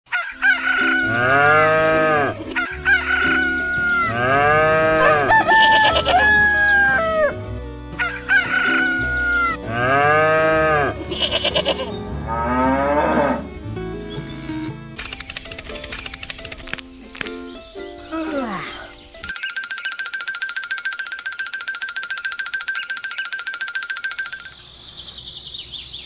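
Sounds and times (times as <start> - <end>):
background music: 0.1 - 24.6
rooster crowing: 4.6 - 7.4
rooster clucking: 4.9 - 7.3.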